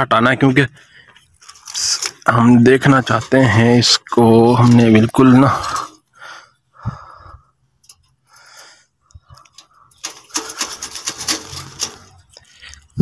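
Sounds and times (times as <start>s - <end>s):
crackling clicks and metal scraping: 0.5s - 6.2s, 7.7s - 13.0s
wire mesh rustling and scraping: 1.3s - 6.0s, 9.3s - 13.0s.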